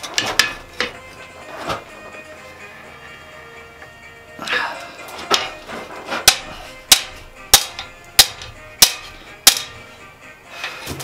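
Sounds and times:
hammer striking steel on anvil: 6.2 - 9.8.

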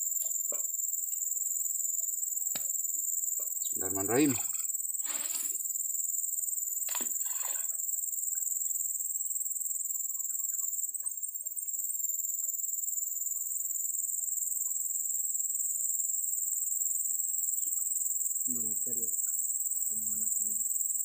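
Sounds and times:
insects shrilling: 0.0 - 9.2.

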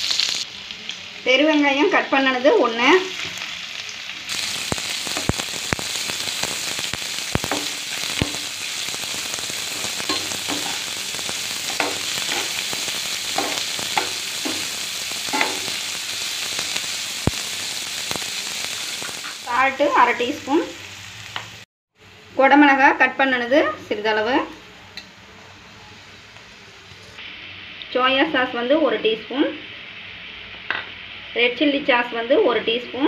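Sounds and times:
food sizzling in hot oil: 0.0 - 33.0
spatula scraping a pan: 11.6 - 15.9.

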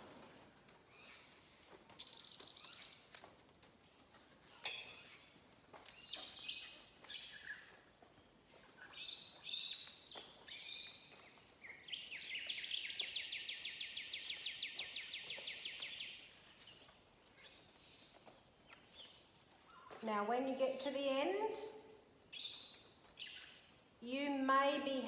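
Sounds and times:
bird chirping and trilling: 0.9 - 3.2, 4.4 - 7.9, 8.8 - 18.1, 22.3 - 23.7.

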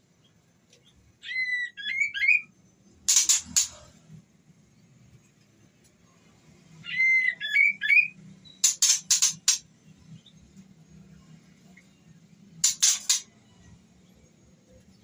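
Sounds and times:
harsh scratchy bird notes: 3.1 - 3.8, 8.6 - 9.6, 12.6 - 13.3.

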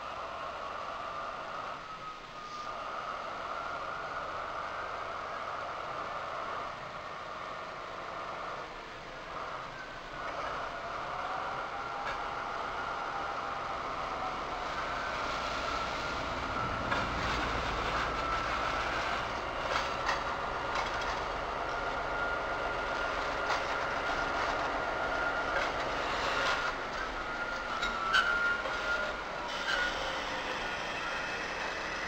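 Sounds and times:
thin steady wheel squeal: 0.0 - 32.0
train wheels clicking over rail joints: 9.4 - 32.0.

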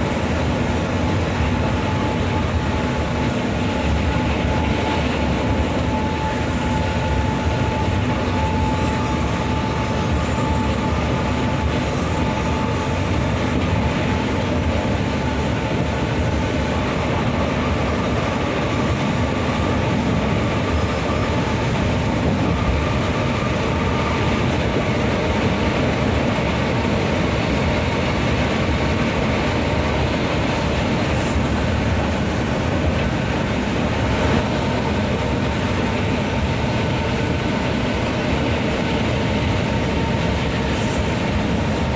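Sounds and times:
bus engine drone: 0.0 - 41.9.

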